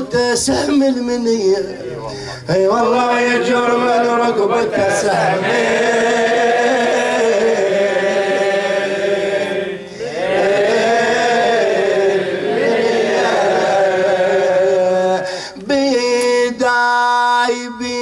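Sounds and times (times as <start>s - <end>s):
man chanting into a microphone: 0.0s - 5.5s, 12.8s - 18.0s.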